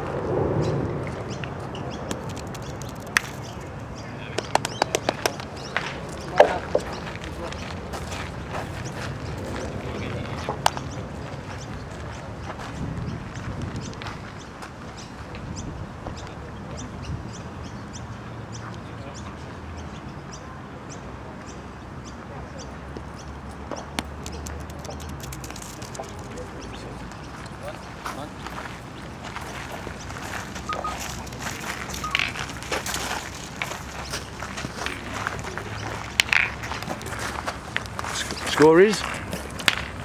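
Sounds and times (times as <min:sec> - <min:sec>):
bird chirping: 0:00.6 - 0:07.7, 0:13.4 - 0:39.2
steel boules clacking: 0:36.1 - 0:37.0.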